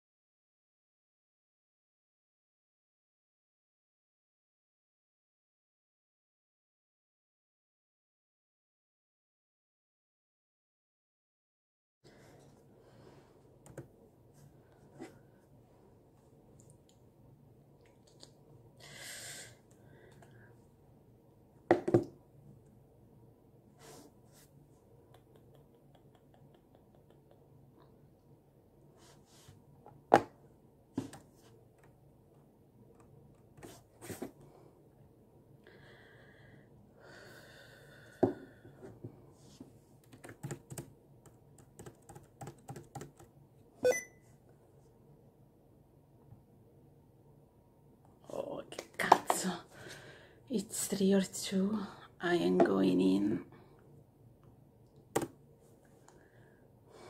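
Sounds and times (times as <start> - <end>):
computer keyboard typing: 40.0 - 43.3.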